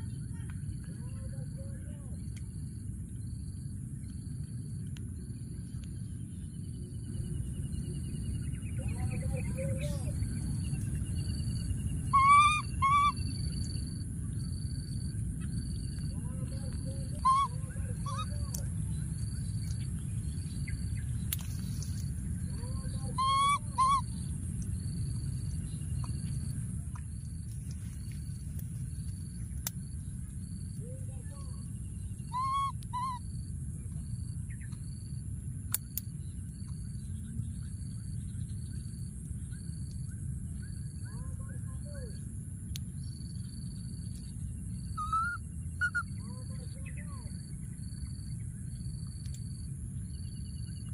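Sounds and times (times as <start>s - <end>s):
baby monkey crying: 12.1s - 13.2s, 17.2s - 18.4s, 23.1s - 24.0s, 32.3s - 33.2s, 45.0s - 46.0s.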